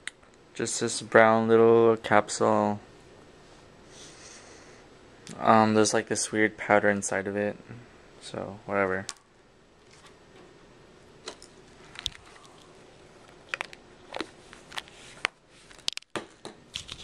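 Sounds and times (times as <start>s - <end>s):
camera handling rustling: 11.3s - 12.7s.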